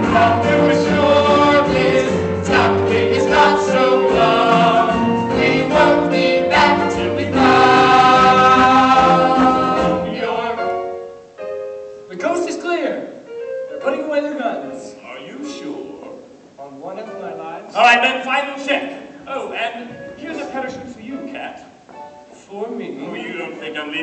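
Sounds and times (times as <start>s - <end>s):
chorus singing: 0.0s - 11.1s.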